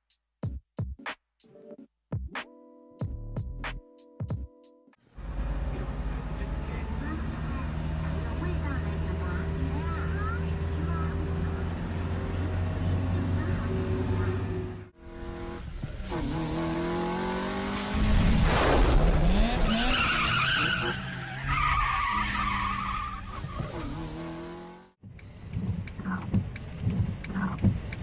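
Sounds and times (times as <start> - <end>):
car engine revving: 5.0 - 25.0
tyres squealing on road: 19.5 - 24.0.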